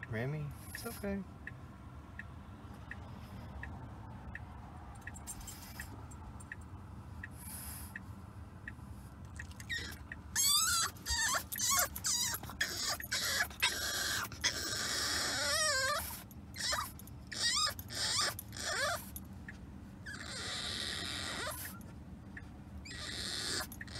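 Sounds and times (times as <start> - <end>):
moving car rumble: 0.0 - 23.9
puppy whining: 9.4 - 19.2, 20.0 - 23.9.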